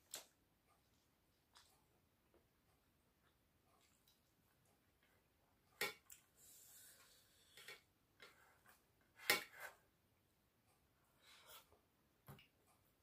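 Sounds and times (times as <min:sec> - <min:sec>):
soft chewing: 0:00.0 - 0:08.9.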